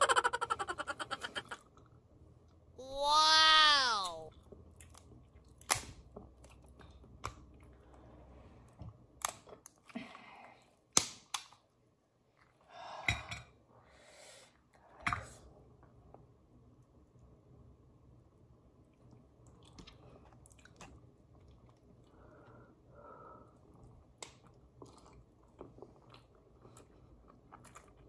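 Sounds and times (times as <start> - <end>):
chewing and smacking: 18.9 - 22.1, 23.7 - 28.0.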